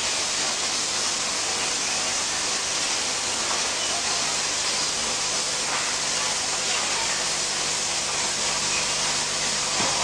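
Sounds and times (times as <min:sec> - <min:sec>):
machinery hissing: 0:00.0 - 0:10.0.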